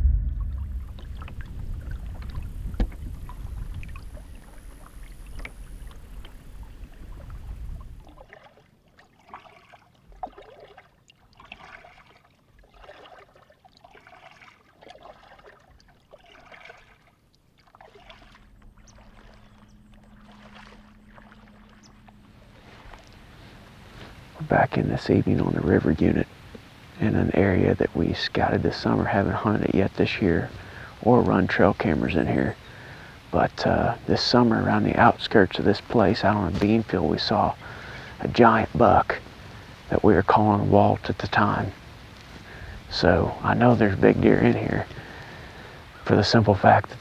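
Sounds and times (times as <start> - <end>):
low rumble: 0.0 - 8.0, 18.3 - 26.4
waders sloshing through water: 0.4 - 24.5.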